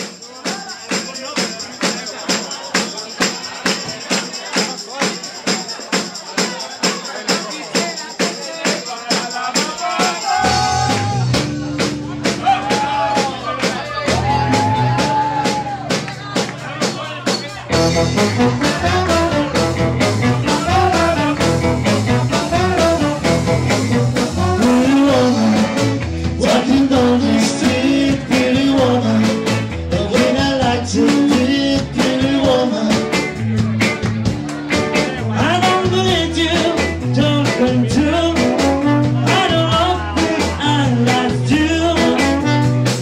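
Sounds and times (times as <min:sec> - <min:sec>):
live rock band playing: 0:09.1 - 0:43.0.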